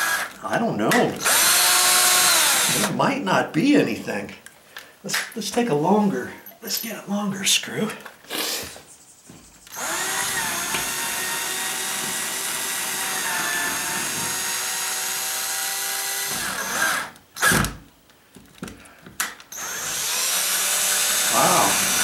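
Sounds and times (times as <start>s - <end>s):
cordless drill driving screw: 0.0s - 0.4s, 1.2s - 2.9s, 9.7s - 17.8s, 19.5s - 22.0s.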